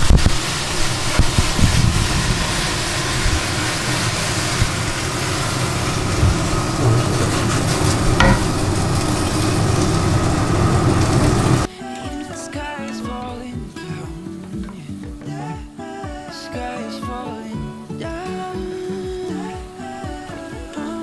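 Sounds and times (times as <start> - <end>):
meat sizzling in a frying pan: 0.0 - 11.7
potatoes tumbling into pan: 7.3 - 10.0.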